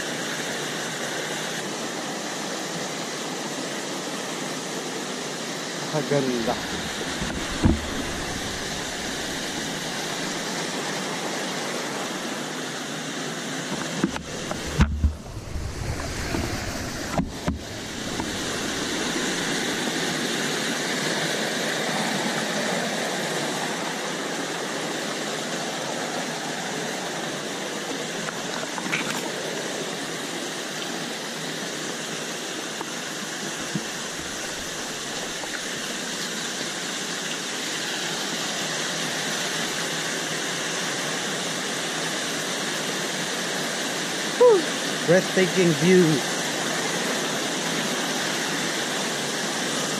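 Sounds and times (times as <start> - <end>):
stream rushing over boulders: 0.0 - 49.9
sharp knocks: 7.0 - 8.8, 14.0 - 15.3, 17.0 - 19.2.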